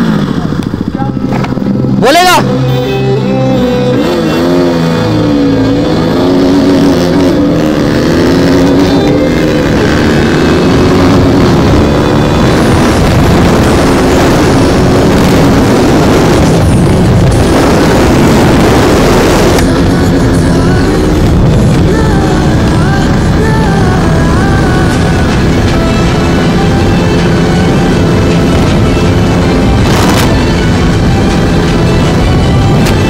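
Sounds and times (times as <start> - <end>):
motorcycle engine accelerating: 0.0 - 33.0
wind noise rushing: 4.0 - 33.0.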